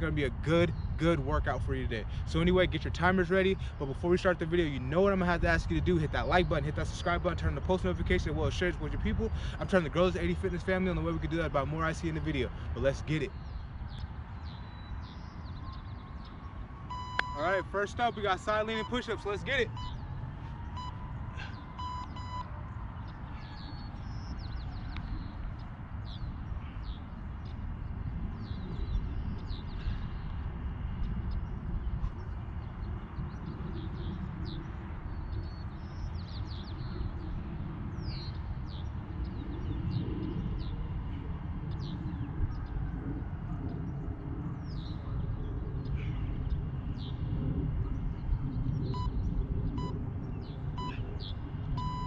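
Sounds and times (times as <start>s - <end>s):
small birds chirping: 0.0s - 52.0s
wind on microphone: 0.0s - 52.0s
electronic timer beeps: 16.9s - 17.4s, 19.7s - 20.0s, 21.8s - 22.5s, 51.8s - 52.0s.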